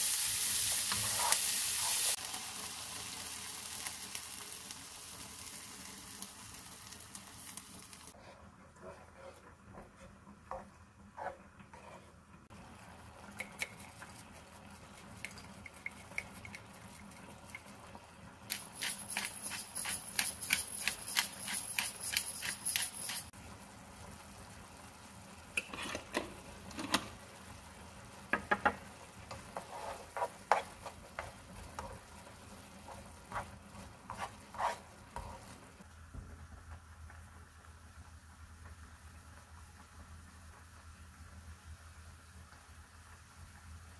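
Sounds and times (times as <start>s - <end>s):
wooden spoon stirring sauce in pan: 8.1s - 12.4s, 28.6s - 35.8s
spoon scraping and tapping pan: 15.0s - 17.7s, 25.6s - 27.1s, 28.3s - 32.1s.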